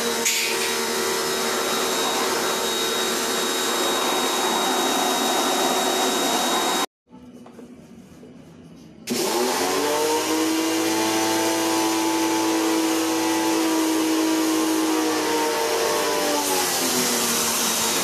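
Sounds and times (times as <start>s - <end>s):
pressure washer motor whine: 0.0s - 6.9s.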